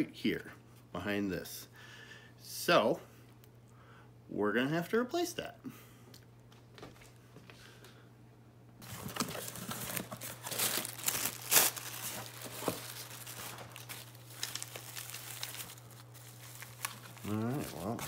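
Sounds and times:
plastic packaging crinkling: 8.8 - 18.0.

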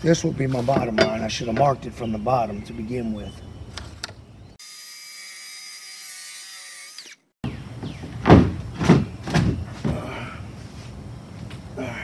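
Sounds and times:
loud knocks: 8.0 - 10.0.

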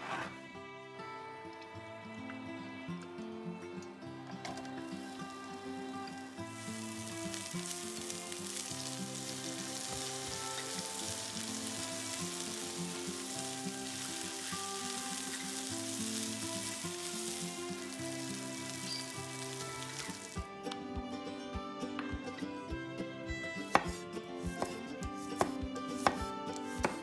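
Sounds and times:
soft background music: 0.0 - 27.0
food sizzling in frying pan: 4.9 - 20.5.

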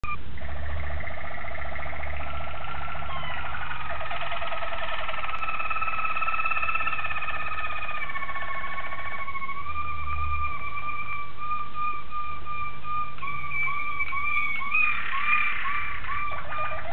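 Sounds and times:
canary rolling trill: 0.4 - 11.9, 12.6 - 16.9
canary held whistled notes: 7.5 - 16.9.

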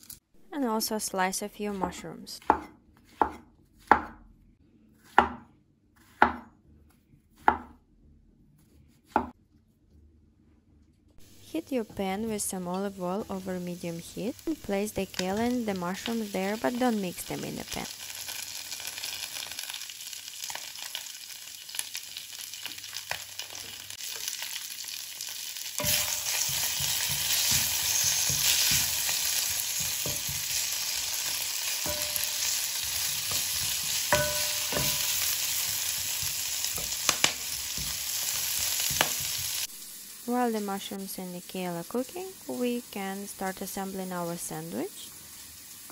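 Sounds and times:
vegetables sizzling in oil: 11.2 - 45.9.

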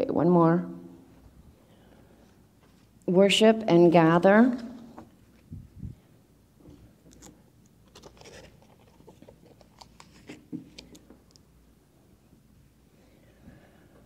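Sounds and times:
steady low hum: 0.0 - 14.0
handling rustling and clicks: 7.0 - 11.4.

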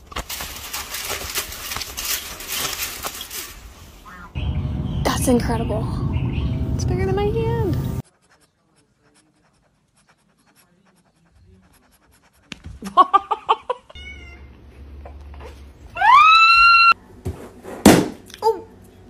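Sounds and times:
cat meowing: 13.9 - 14.5.

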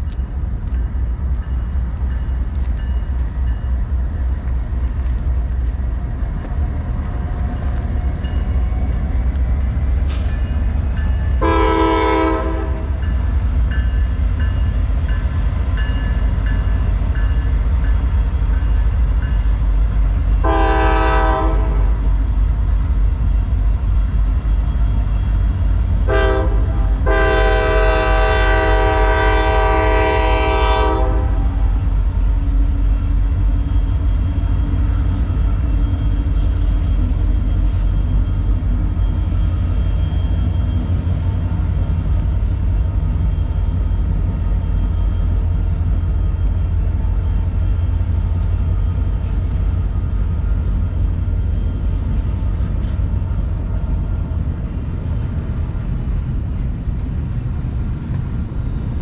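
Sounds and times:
diesel locomotives rumbling: 0.0 - 59.0
train air horn blasts: 11.4 - 13.0, 20.4 - 22.1, 26.0 - 31.8.

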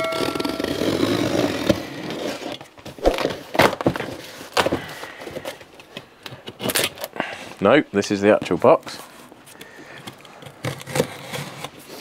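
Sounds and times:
knife scraping along packing tape: 10.4 - 12.0.

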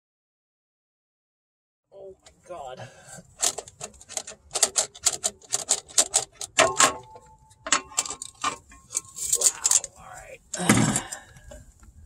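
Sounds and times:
metallic clicking and clinking: 3.4 - 11.6.

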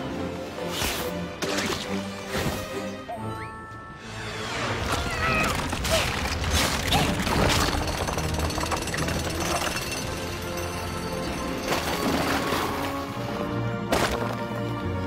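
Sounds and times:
background music: 0.0 - 15.0
rock rumbling and crumbling: 5.5 - 13.2.

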